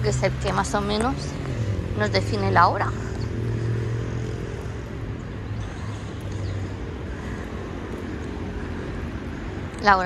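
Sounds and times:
engine humming: 0:00.0 - 0:10.0
street traffic noise: 0:00.0 - 0:10.0.

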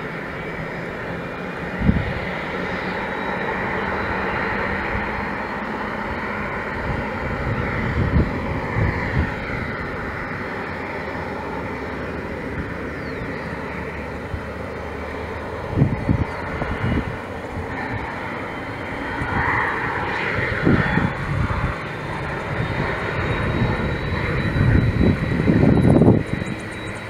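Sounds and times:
high engine whine: 0:00.0 - 0:27.0
jet engines running: 0:00.0 - 0:27.0
wind bumps on microphone: 0:06.8 - 0:09.7, 0:15.7 - 0:17.2, 0:24.5 - 0:26.5.

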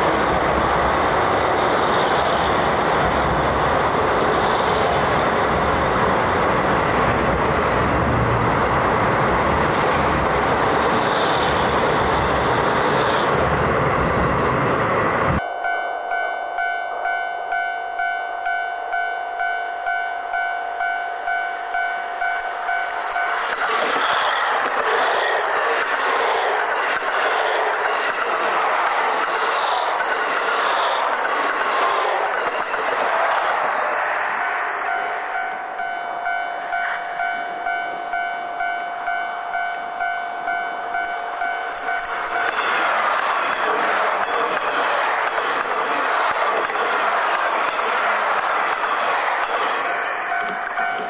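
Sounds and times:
level crossing alarm ding: 0:15.4 - 0:23.4
level crossing warning bell: 0:15.4 - 0:23.6, 0:34.3 - 0:42.5, 0:49.8 - 0:51.0
passing train rail hiss: 0:21.8 - 0:35.9, 0:41.3 - 0:51.0.

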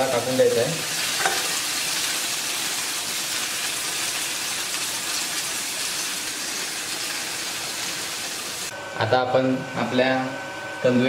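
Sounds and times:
chicken frying in oil: 0:00.0 - 0:08.7.

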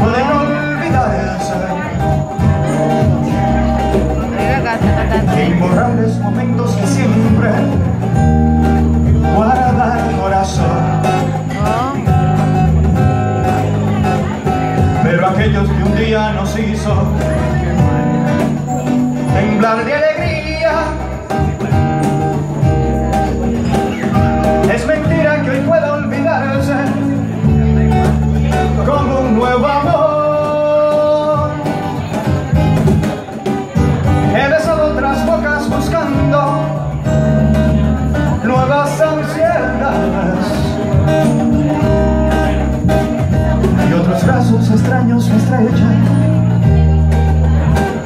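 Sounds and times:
guitar chords: 0:00.0 - 0:48.0
keyboard chords: 0:00.0 - 0:48.0
person singing: 0:03.9 - 0:08.0.

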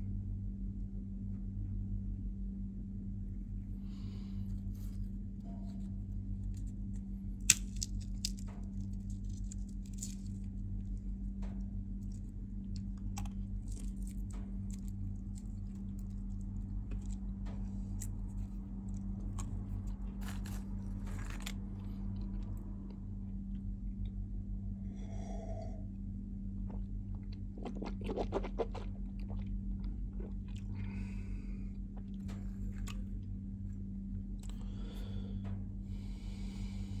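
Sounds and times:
low hum: 0:00.0 - 0:37.0
nuts chewed crunchily: 0:05.7 - 0:11.0, 0:12.0 - 0:22.6, 0:26.6 - 0:33.1
peanut shells cracking: 0:06.4 - 0:10.5, 0:12.0 - 0:21.6.

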